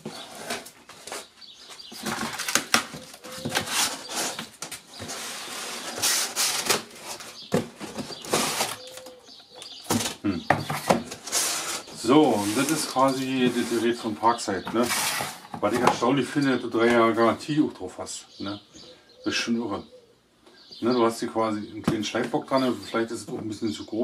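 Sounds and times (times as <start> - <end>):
cardboard flaps rustling: 0.0 - 9.1, 9.8 - 16.0
cardboard scraping: 0.0 - 9.1, 9.9 - 15.8.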